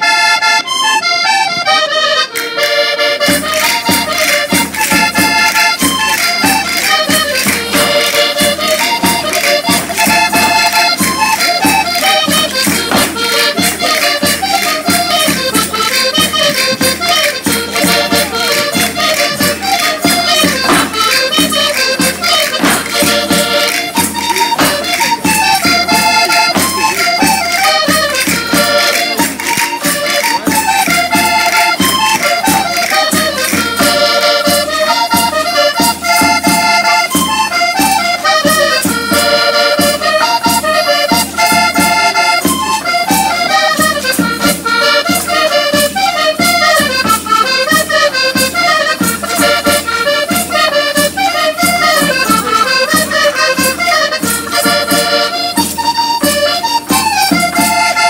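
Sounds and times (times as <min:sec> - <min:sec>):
accordion playing quick melody: 0:00.0 - 0:58.0
percussion fast beat: 0:00.2 - 0:58.0.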